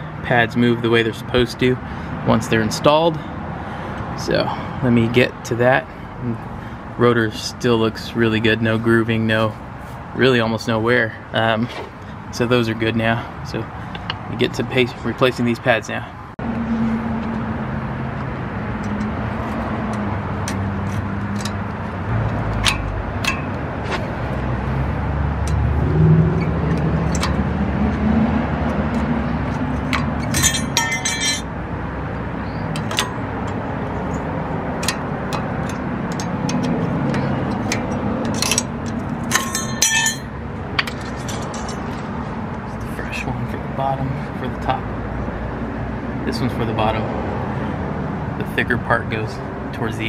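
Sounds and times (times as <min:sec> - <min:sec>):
metallic clinks and scraping: 0:28.9 - 0:31.6, 0:32.7 - 0:42.2
rapid rattling clinks: 0:30.0 - 0:31.5, 0:37.5 - 0:42.0.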